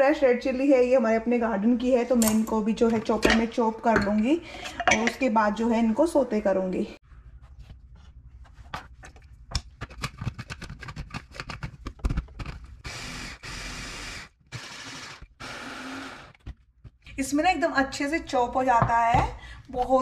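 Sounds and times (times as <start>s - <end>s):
hand blender motor chopping: 12.8s - 16.5s.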